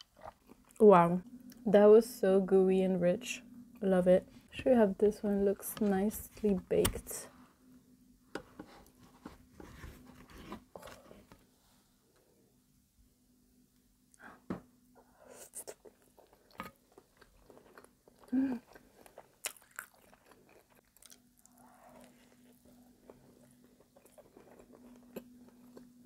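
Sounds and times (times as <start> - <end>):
person chewing: 0.0 - 0.8, 15.6 - 26.0.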